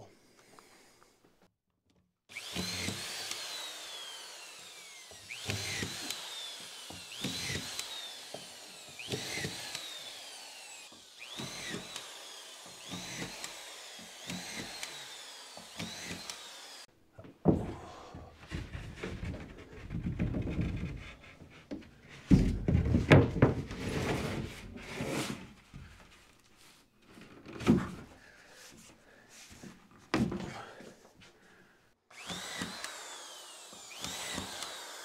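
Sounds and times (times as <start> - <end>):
screw gun motor whine: 2.3 - 16.9, 32.1 - 35.0.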